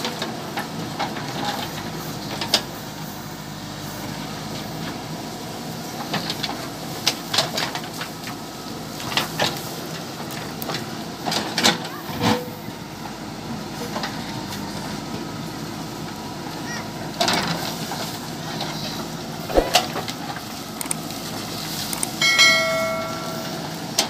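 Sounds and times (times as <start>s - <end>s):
bucket scraping stony ground: 19.5s - 20.0s.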